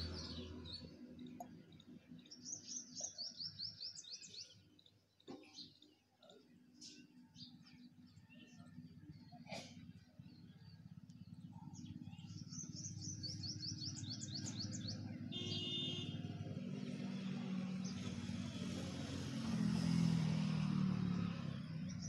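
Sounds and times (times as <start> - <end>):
small bird chirping: 0.0 - 8.9, 10.2 - 15.8.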